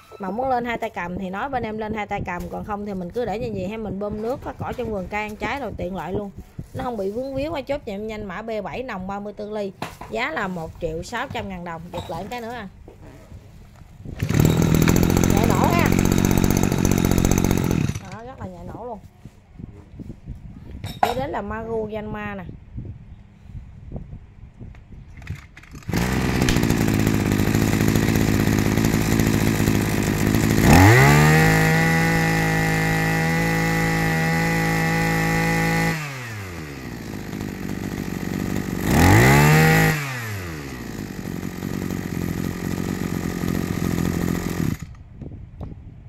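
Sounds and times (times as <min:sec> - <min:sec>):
brush cutter engine revving: 0:14.0 - 0:18.4, 0:25.2 - 0:45.0.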